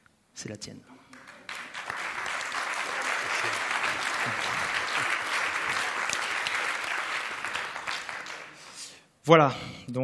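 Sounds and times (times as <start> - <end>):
audience applauding: 1.1 - 8.8.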